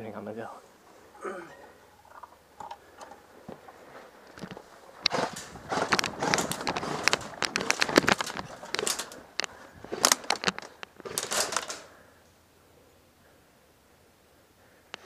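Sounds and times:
rustling gear and brush: 0.5 - 12.0
footsteps on grass and sand: 3.4 - 10.3.

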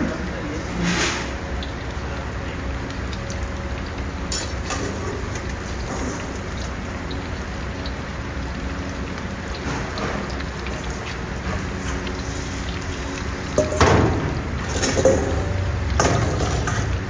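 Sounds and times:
chicken deep-frying in oil: 0.0 - 17.0.

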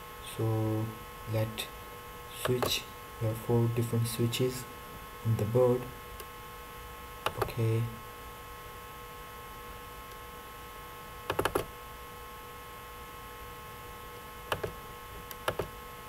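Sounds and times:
electrical hum: 0.0 - 16.0
computer mouse clicking: 2.4 - 2.8, 7.2 - 7.5, 11.3 - 11.7, 14.5 - 15.7.

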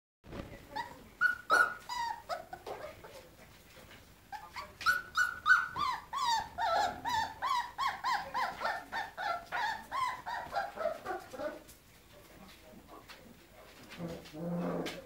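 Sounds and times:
puppies whining: 0.7 - 3.1, 4.3 - 11.7.

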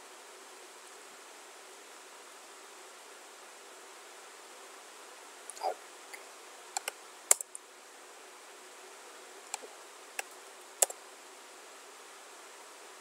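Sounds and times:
microphone background hiss: 0.0 - 13.0
computer mouse clicks: 6.8 - 7.6, 9.5 - 11.0.

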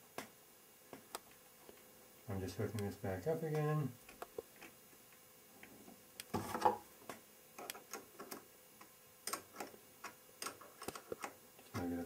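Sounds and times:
faint metallic clicks and taps: 3.5 - 6.4, 7.0 - 11.9.

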